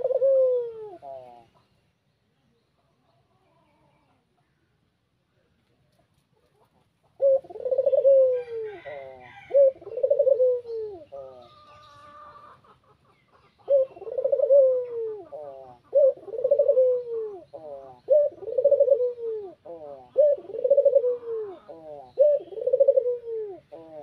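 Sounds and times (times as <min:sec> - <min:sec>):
dove cooing: 0:00.0 - 0:01.6, 0:07.0 - 0:12.8, 0:13.4 - 0:24.0.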